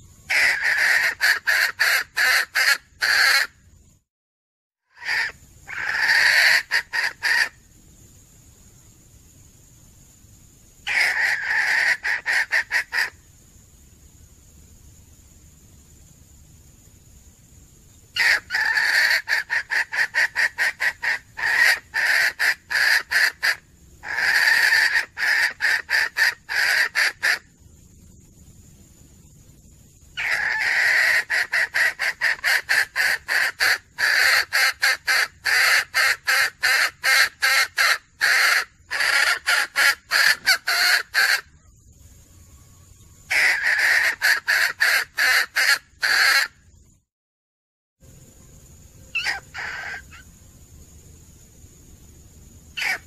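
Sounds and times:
hen cackling: 0:00.3 - 0:03.6, 0:04.9 - 0:07.6, 0:10.8 - 0:13.2, 0:18.2 - 0:27.5, 0:30.2 - 0:41.5, 0:43.3 - 0:46.6, 0:49.1 - 0:50.3, 0:52.8 - 0:53.0.

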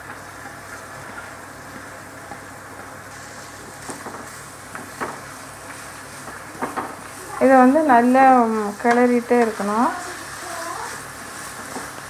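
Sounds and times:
onions sizzling in oil: 0:00.0 - 0:12.0
wooden spatula knocking pan: 0:08.5 - 0:09.6.

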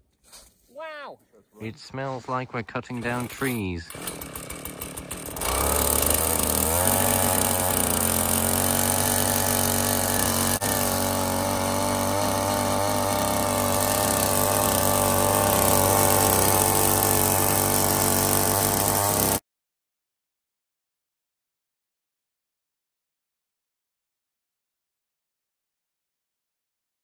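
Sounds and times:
ice auger engine running: 0:03.0 - 0:19.4.

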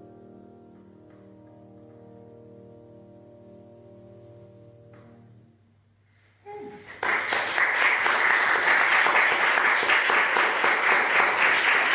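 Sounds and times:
audience applauding: 0:06.8 - 0:11.9.

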